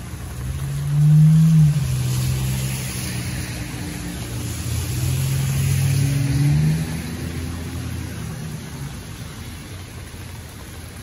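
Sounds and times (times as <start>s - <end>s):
car passing on wet road: 0.0s - 11.0s
rain hiss: 0.0s - 11.0s.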